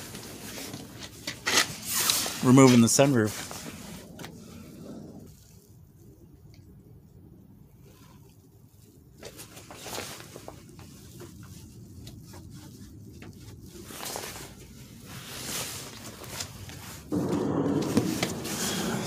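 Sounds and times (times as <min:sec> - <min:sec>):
handling clicks and rustles: 0:00.0 - 0:04.5.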